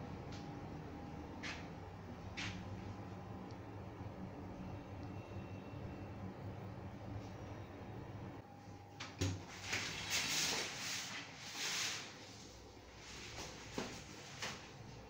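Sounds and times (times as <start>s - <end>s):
rustling and shuffling: 9.3s - 15.0s.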